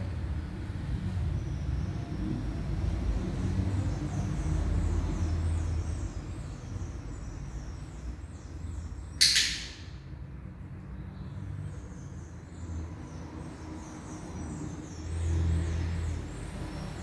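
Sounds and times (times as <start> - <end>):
training clicker click: 9.2 - 9.8
high falling chirps: 9.2 - 10.1.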